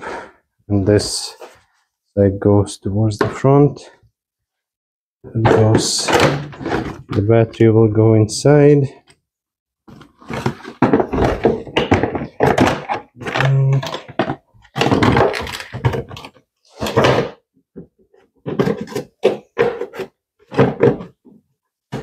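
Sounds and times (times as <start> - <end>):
plastic tray knocks and clunks: 5.3 - 7.3, 10.2 - 22.0.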